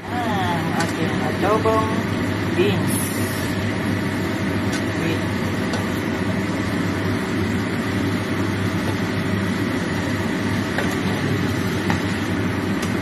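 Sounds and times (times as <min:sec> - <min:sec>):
food sizzling in a wok: 0:02.3 - 0:04.7.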